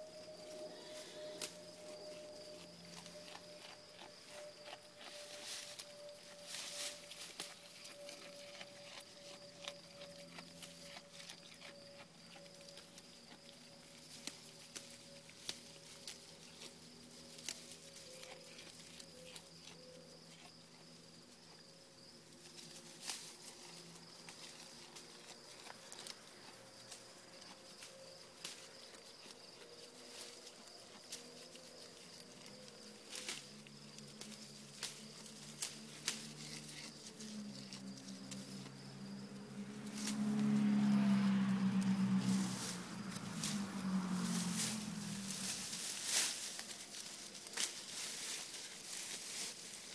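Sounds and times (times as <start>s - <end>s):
insect trill: 0.0s - 49.9s
goat chewing leaves: 0.9s - 21.7s, 22.4s - 38.8s, 39.8s - 49.9s
low droning hum: 34.2s - 47.3s.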